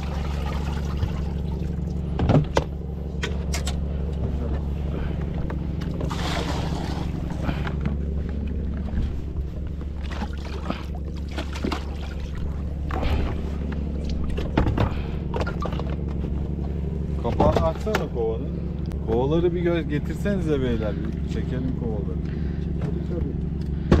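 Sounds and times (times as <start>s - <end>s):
boat engine humming: 0.0s - 24.0s
knocks and clatter on board: 2.1s - 2.7s, 14.3s - 16.2s.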